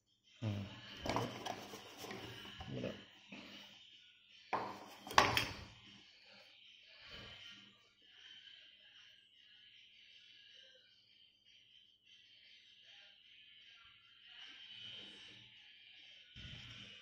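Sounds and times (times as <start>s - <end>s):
plastic parts knocking and clattering: 1.0s - 2.4s, 4.6s - 5.6s.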